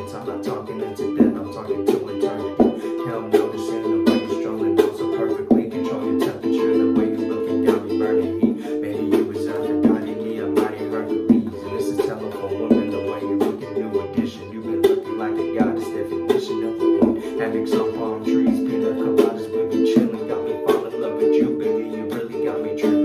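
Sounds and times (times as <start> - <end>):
ukulele strumming: 0.0 - 23.0.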